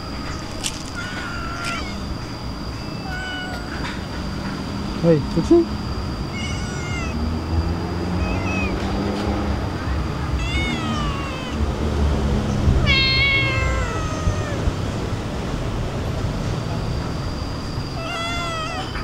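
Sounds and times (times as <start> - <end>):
cats meowing: 0.0 - 4.1, 6.2 - 11.8, 12.6 - 15.1, 17.9 - 19.0.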